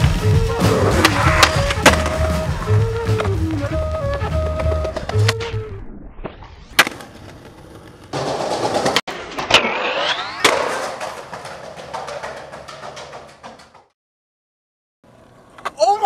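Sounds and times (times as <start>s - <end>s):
music: 0.0s - 5.9s
skateboard wheels rolling and grinding: 0.0s - 13.9s, 15.1s - 15.8s
skateboard snapping: 0.8s - 2.4s, 6.7s - 8.0s.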